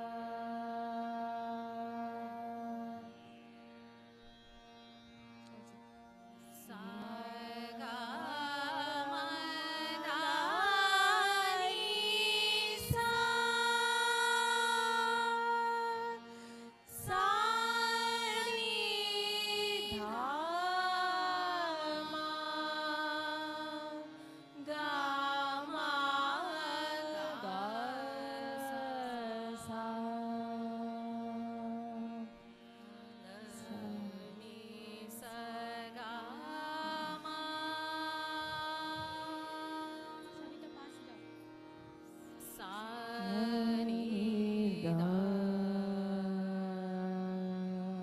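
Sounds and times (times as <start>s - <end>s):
women singing classical duet: 6.7s - 16.2s, 17.0s - 30.8s, 33.4s - 40.2s, 42.5s - 47.0s.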